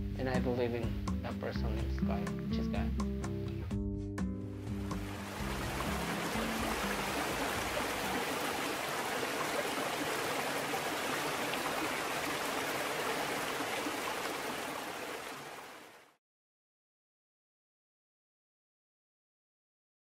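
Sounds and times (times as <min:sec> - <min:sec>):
background music: 0:00.0 - 0:08.6.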